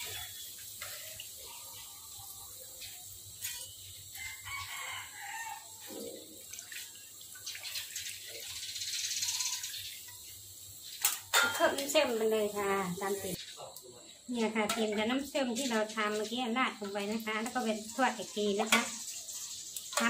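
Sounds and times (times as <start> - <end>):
metal spatula scraping wok: 0.0 - 1.2, 3.4 - 3.9, 14.7 - 20.0
food deep-frying in oil: 0.0 - 20.0.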